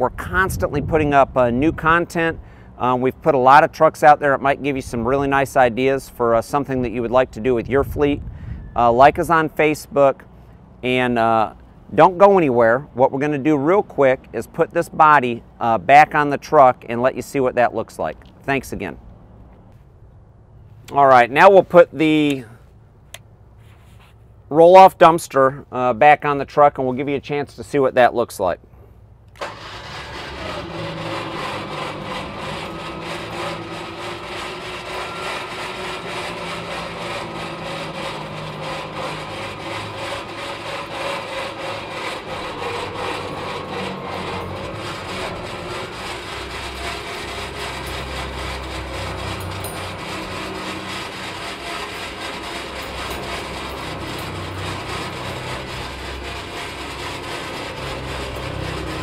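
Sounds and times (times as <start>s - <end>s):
hydraulic hoist mechanical hum: 29.2s - 59.0s
diesel truck engine running: 29.4s - 59.0s.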